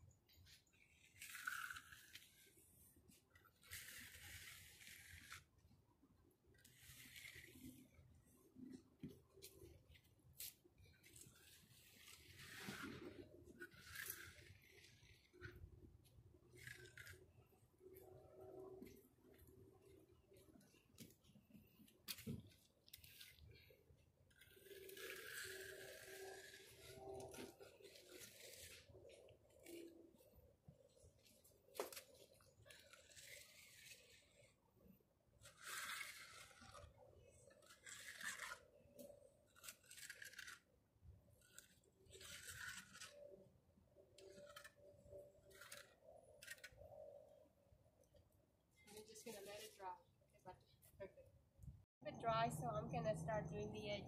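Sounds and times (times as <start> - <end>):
trowel scraping wet concrete: 0.3 - 5.8, 6.6 - 19.5, 22.0 - 43.6, 44.2 - 46.8.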